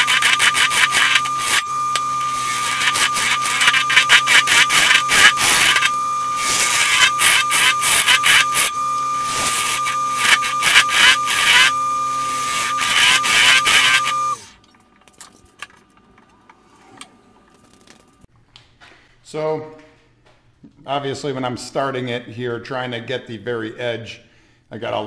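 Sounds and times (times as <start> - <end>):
lathe motor whine: 0.0 - 14.6.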